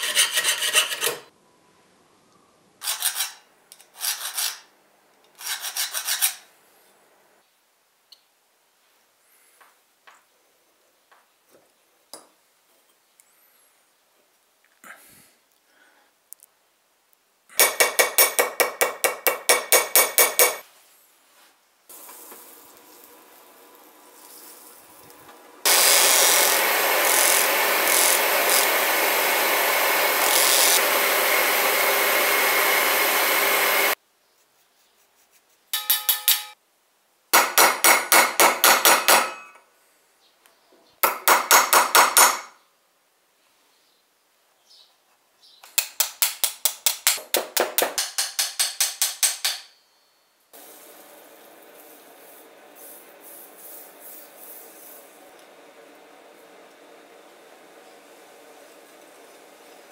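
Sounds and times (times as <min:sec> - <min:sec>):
ringing hand-tool strokes on brass: 0:19.4 - 0:20.6, 0:35.8 - 0:36.6
buffing wheel motor running: 0:25.3 - 0:34.0.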